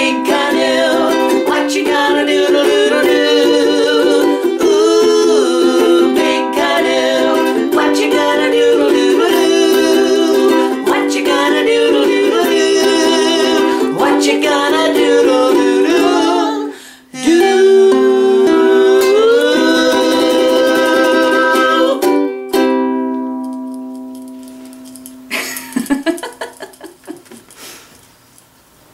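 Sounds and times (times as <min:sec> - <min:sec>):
person singing: 0:00.0 - 0:22.3
strummed ukulele: 0:00.0 - 0:25.8.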